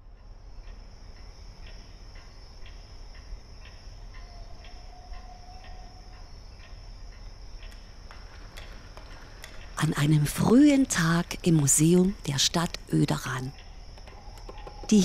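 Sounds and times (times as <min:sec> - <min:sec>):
low background noise: 0:00.0 - 0:15.0
wall clock ticking: 0:00.6 - 0:15.0.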